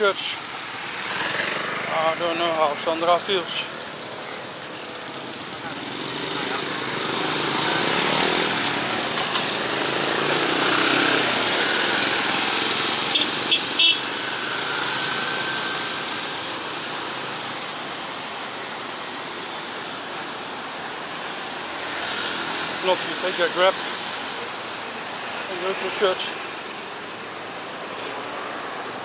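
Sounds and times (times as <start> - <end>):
vehicle engine passing: 4.8 - 18.0.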